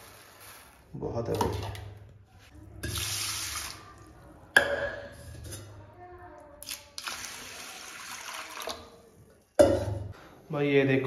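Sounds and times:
kitchen tap running: 0:02.8 - 0:04.0, 0:06.6 - 0:09.0.

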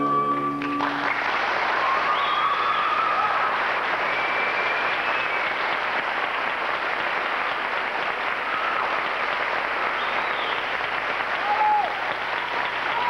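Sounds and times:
audience applauding: 0:00.6 - 0:13.0
crowd calling out: 0:11.3 - 0:13.0.

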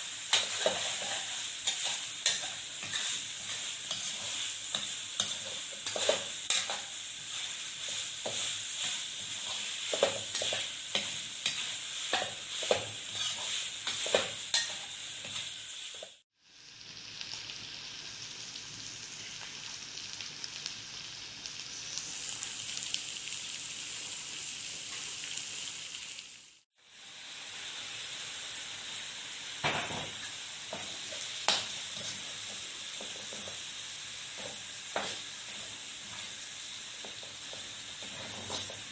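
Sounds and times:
meat sizzling in hot oil: 0:00.0 - 0:38.9
metal spatula scraping a wok: 0:00.2 - 0:16.2.

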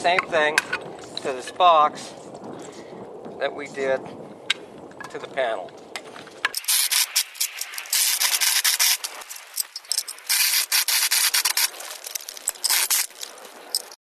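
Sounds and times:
power drill grinding through sheet steel: 0:06.6 - 0:09.3, 0:10.0 - 0:11.7.

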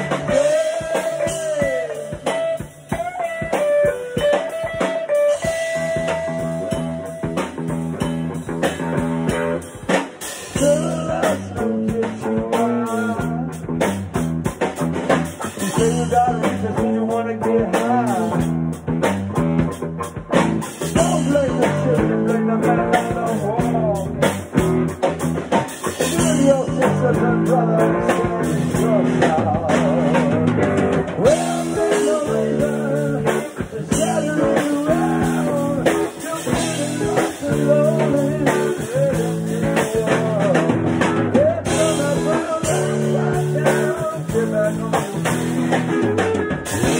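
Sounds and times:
person singing: 0:00.0 - 0:07.6, 0:10.3 - 0:13.7, 0:15.4 - 0:18.6, 0:20.8 - 0:24.6, 0:25.5 - 0:46.9
drum kit with cymbals: 0:00.0 - 0:46.9
guitar: 0:00.0 - 0:46.9.

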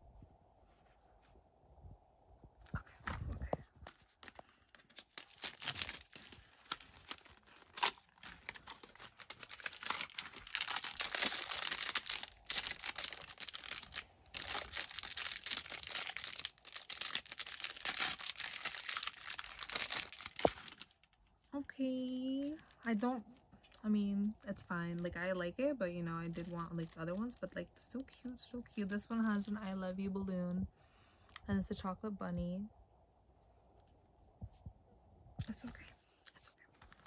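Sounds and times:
cardboard and foil crinkling: 0:03.1 - 0:21.2, 0:21.9 - 0:30.0, 0:36.6 - 0:37.0.

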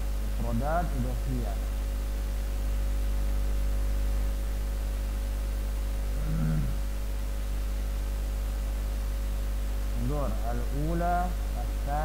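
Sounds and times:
electrical mains hum: 0:00.0 - 0:12.0
man murmuring: 0:06.2 - 0:06.8, 0:10.0 - 0:12.0.

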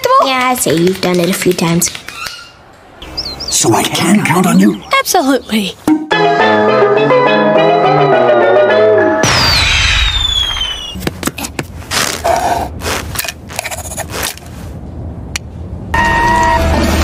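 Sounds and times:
cartoon bang: 0:09.2 - 0:11.0
falling whistle: 0:09.4 - 0:11.0.

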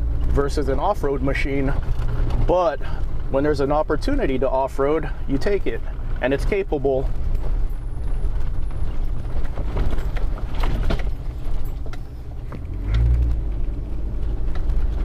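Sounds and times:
van engine and tyres rumbling: 0:00.0 - 0:15.0
body knocks and rattles: 0:01.5 - 0:03.4, 0:05.4 - 0:15.0.

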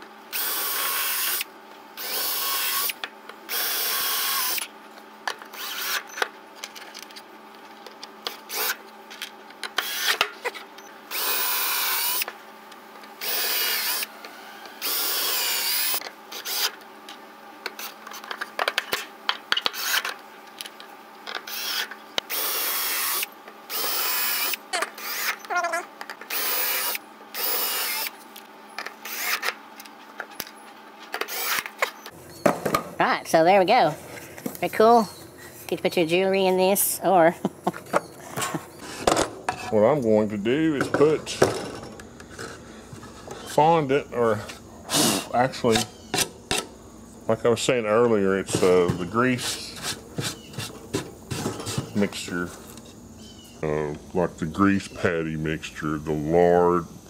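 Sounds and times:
cordless drill driving screws: 0:00.4 - 0:04.7, 0:05.5 - 0:06.1, 0:09.8 - 0:10.2, 0:11.1 - 0:12.3, 0:13.2 - 0:16.7, 0:21.4 - 0:25.5, 0:26.3 - 0:28.1, 0:29.0 - 0:29.5, 0:31.2 - 0:31.7.

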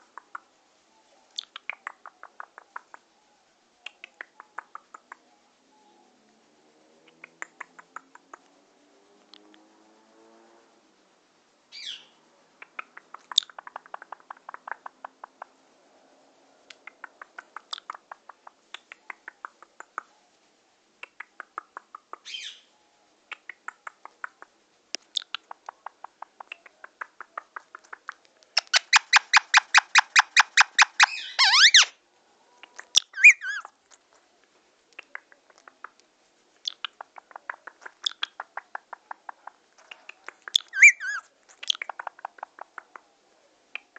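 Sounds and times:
parakeet chattering: 0:28.6 - 0:31.9, 0:32.8 - 0:33.7, 0:36.6 - 0:42.8
parakeet squawk: 0:28.6 - 0:31.9, 0:33.0 - 0:33.7, 0:40.5 - 0:41.2
parakeet whistles: 0:28.9 - 0:31.9, 0:33.2 - 0:33.6, 0:40.6 - 0:41.2.

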